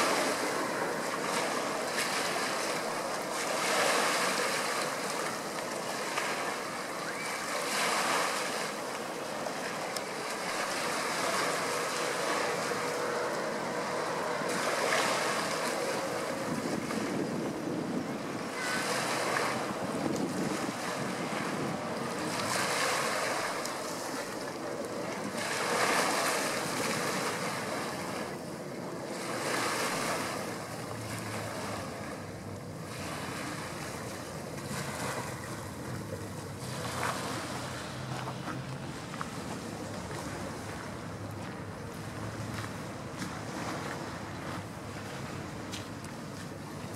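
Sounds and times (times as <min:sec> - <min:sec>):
river water washing against bank: 0:00.0 - 0:46.9
wind buffeting microphone: 0:12.4 - 0:22.8.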